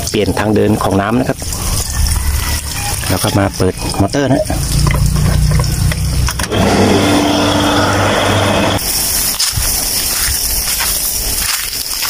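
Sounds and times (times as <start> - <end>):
electric pump humming: 1.4 - 9.3
steady hiss: 7.5 - 12.0.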